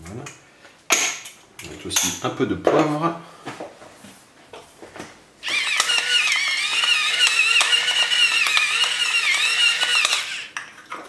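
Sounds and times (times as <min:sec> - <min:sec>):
electric pepper mill whine: 0:05.4 - 0:10.6.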